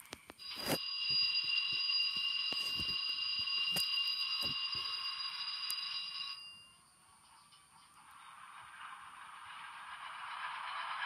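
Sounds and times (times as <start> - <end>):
high ringing alarm-like tone: 0.0 - 7.6.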